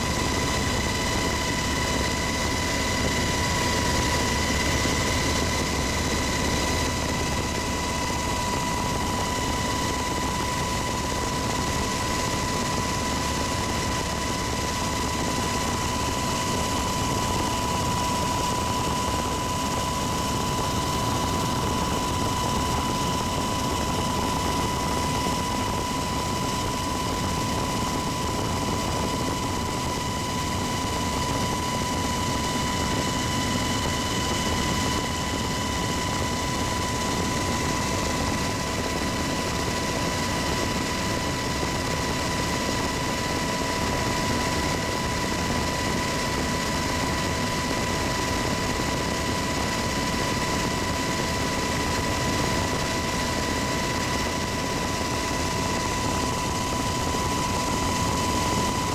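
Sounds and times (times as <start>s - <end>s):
helicopter cabin drone: 0.0s - 58.9s
high-pitched whine: 0.0s - 58.9s.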